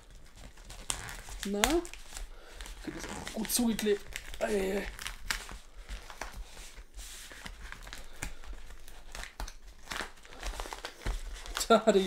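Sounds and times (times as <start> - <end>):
paper packaging crinkling and tearing: 0.0 - 12.0.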